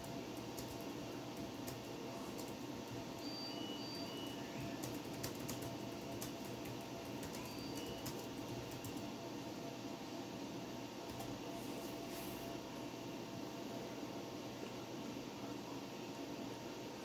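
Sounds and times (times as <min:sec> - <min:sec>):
computer humming: 0:00.0 - 0:17.0.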